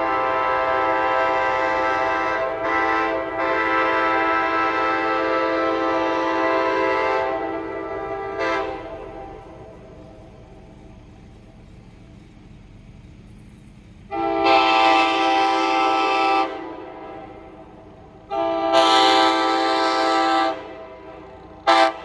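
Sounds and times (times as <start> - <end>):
locomotive air horn blasts: 0.0 - 9.9, 14.1 - 22.0.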